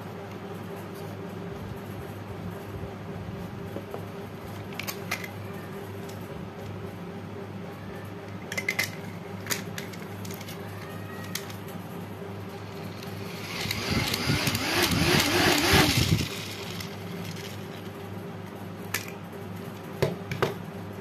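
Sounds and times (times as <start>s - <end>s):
low electric hum: 0.0s - 21.0s
plastic toy fan clicks: 8.5s - 11.6s, 12.9s - 17.6s.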